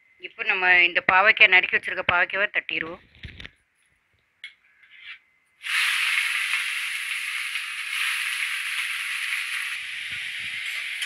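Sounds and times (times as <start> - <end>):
vegetables sizzling in hot oil: 5.6 - 11.0.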